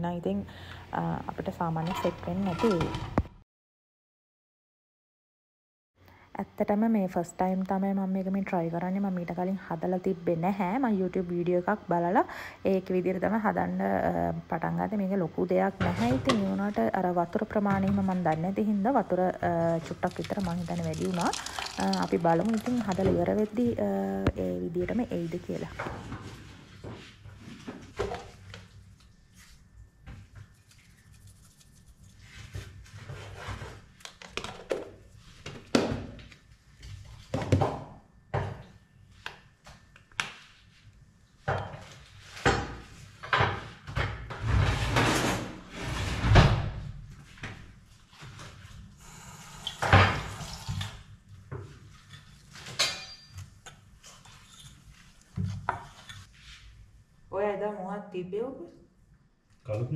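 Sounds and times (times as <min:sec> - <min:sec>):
utensils clattering around pot: 0:01.8 - 0:03.3, 0:52.0 - 0:54.8
wooden spoon stirring in pot: 0:17.4 - 0:23.8.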